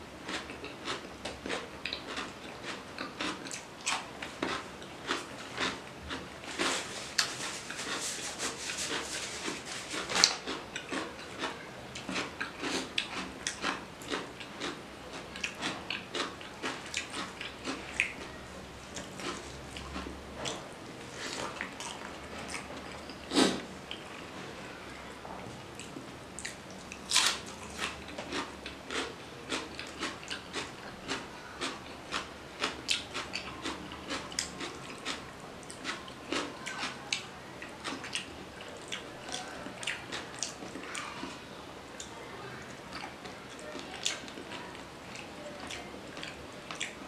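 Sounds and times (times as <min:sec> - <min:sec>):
wet chewing and mouth clicks: 0:00.3 - 0:20.6, 0:25.8 - 0:41.3.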